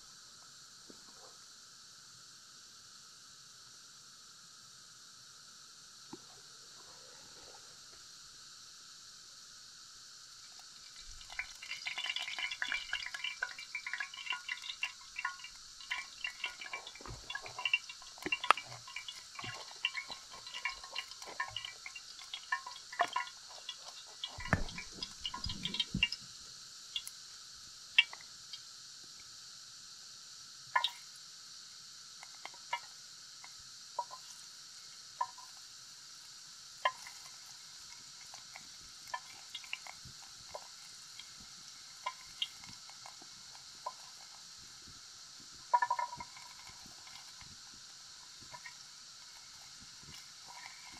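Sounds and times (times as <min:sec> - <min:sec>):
water heating with hiss: 0:00.0 - 0:50.9
small pops and ticks: 0:10.4 - 0:27.3, 0:28.0 - 0:29.3, 0:30.7 - 0:31.2, 0:32.2 - 0:50.9.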